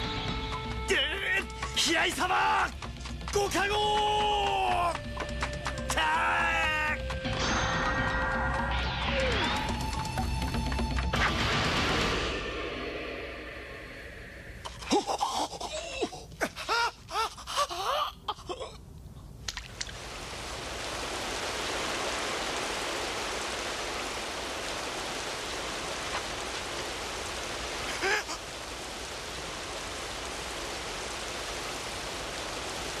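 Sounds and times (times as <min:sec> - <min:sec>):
rain-like rushing hiss: 0:00.0 - 0:33.0.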